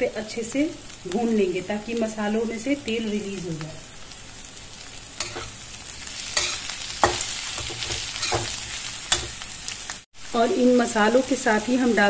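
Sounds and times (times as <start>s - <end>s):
frying sizzle: 0.0s - 12.0s
metal spatula scraping pan: 5.2s - 9.4s.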